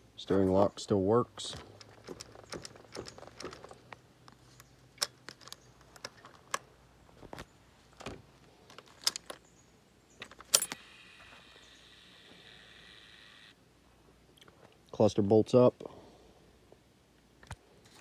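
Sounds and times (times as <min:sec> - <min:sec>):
faint high electronic whine: 0:09.6 - 0:13.8.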